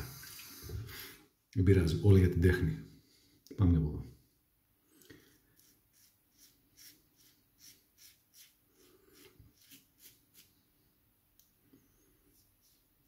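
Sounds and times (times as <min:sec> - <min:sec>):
razor scraping stubble: 0:05.6 - 0:10.5.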